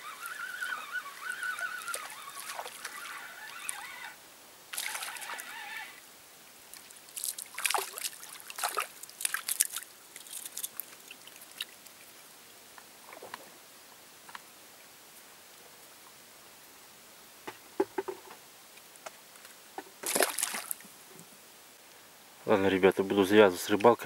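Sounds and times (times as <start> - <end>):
fish splashing at the surface: 0.0 - 5.8, 6.8 - 12.0, 20.0 - 20.8
fishing reel whirring: 0.0 - 6.0.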